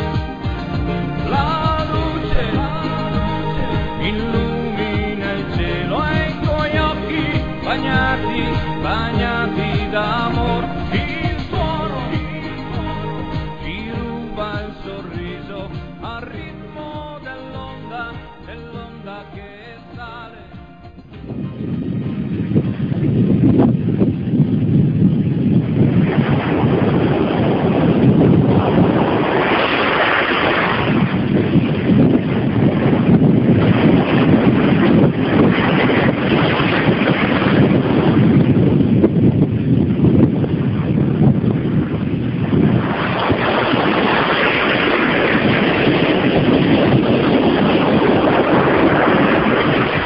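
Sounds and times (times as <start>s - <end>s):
wind buffeting microphone: 0.0s - 50.0s
waves breaking on sand: 25.8s - 39.7s, 40.4s - 50.0s.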